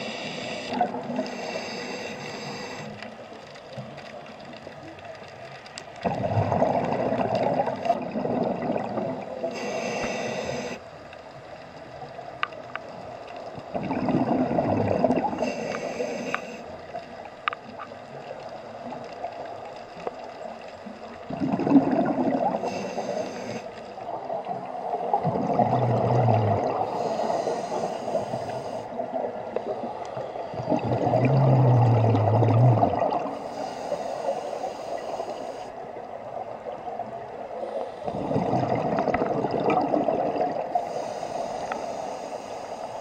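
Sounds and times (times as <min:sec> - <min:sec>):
diver breathing through regulator: 0:00.0 - 0:03.2, 0:09.4 - 0:10.9, 0:14.4 - 0:16.7, 0:22.4 - 0:24.0, 0:24.8 - 0:29.0, 0:33.2 - 0:35.8, 0:37.5 - 0:38.9, 0:40.6 - 0:43.0
bubbly gurgling breaths: 0:06.0 - 0:10.8, 0:13.6 - 0:16.3, 0:21.1 - 0:43.0.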